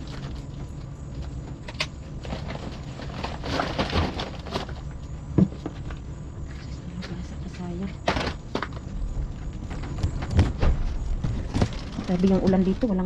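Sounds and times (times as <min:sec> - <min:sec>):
steady low hum: 0:00.0 - 0:13.0
plastic bags rustling: 0:02.2 - 0:05.1
cardboard and goods knocking: 0:09.7 - 0:12.8.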